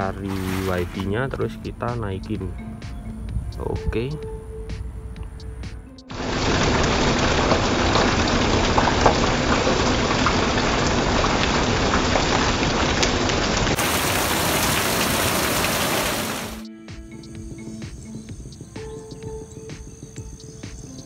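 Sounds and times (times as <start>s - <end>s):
rain falling: 0.0s - 1.9s, 6.1s - 16.6s.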